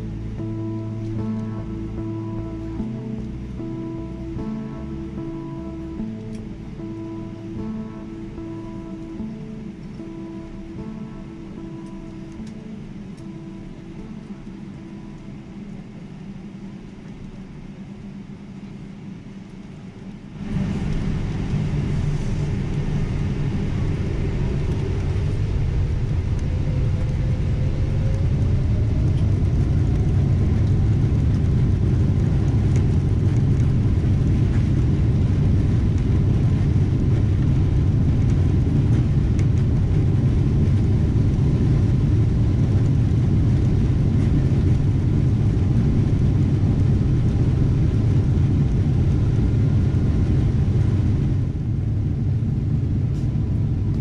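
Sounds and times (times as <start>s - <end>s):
jet engine cabin rumble: 0.0s - 54.0s
rushing air: 20.4s - 54.0s.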